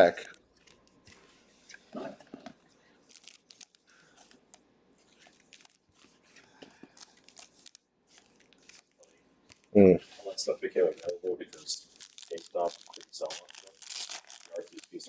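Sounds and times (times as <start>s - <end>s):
plastic wrapper crinkling and tearing: 0.0s - 1.8s, 2.4s - 9.8s, 10.8s - 15.0s.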